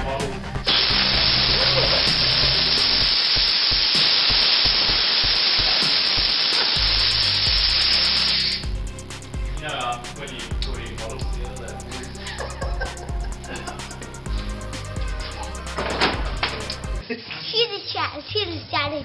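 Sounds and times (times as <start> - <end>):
compressed air hissing from hose: 0.7 - 8.8.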